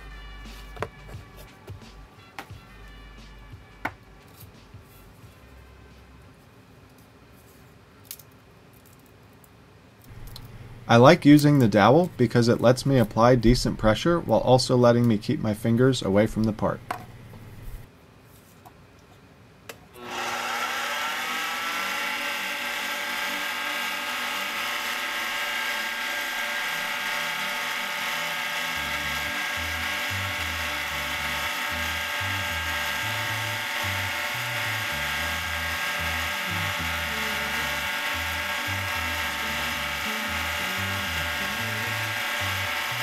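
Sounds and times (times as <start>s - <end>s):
lathe motor whining: 20.0s - 43.0s.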